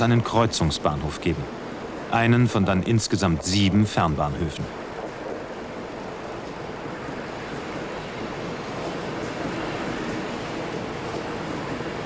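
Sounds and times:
train cars rolling past: 5.9s - 12.0s.

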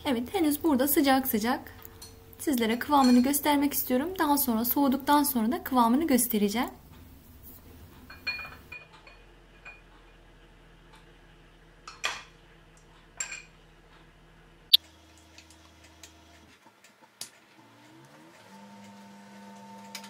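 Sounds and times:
glassware clinking on metal tray: 3.0s - 3.4s, 8.1s - 9.8s.

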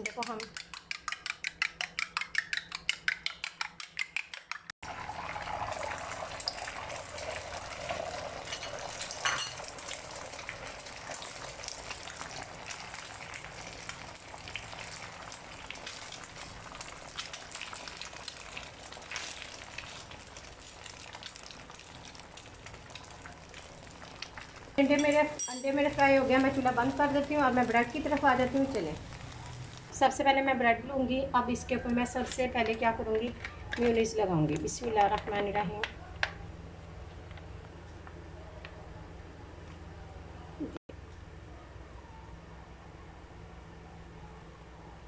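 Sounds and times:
utensil clicking against glass bowl: 0.0s - 4.7s
eggs sizzling in a pan: 4.8s - 30.0s.

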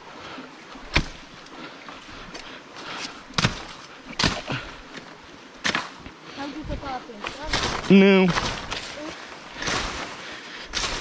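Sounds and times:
hand tool chopping brush: 3.0s - 4.6s, 9.6s - 11.0s.

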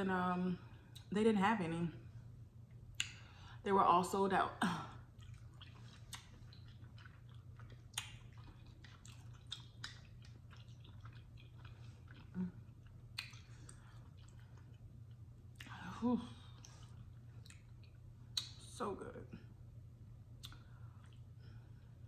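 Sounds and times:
low hum: 0.0s - 22.0s
wet chewing: 5.0s - 15.8s, 16.4s - 18.7s, 20.4s - 22.0s.

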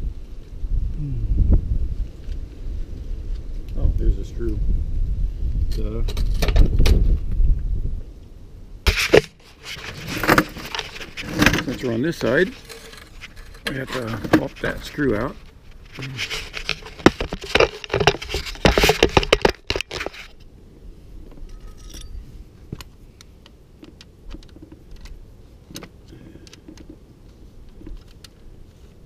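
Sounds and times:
metal tools rattling and clinking: 9.9s - 20.2s, 21.4s - 22.2s.

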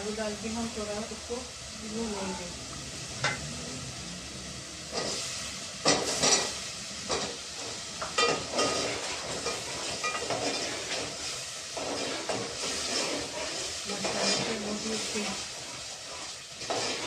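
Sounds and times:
potatoes sizzling in oil: 0.0s - 17.0s
metal spoon scraping pot: 8.1s - 15.4s, 16.2s - 17.0s.

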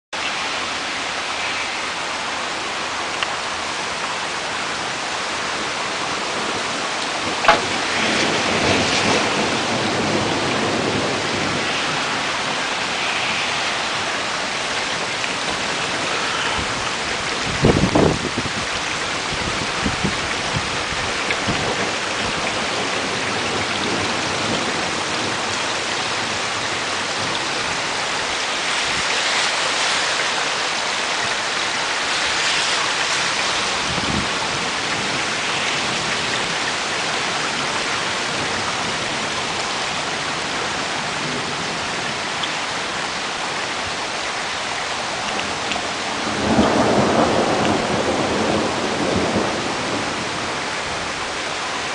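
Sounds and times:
steady rain hiss: 0.2s - 51.9s
low crackling thunder knocks: 7.2s - 12.2s, 21.4s - 25.6s, 46.2s - 50.3s
sharp thunder crack: 7.3s - 12.1s.

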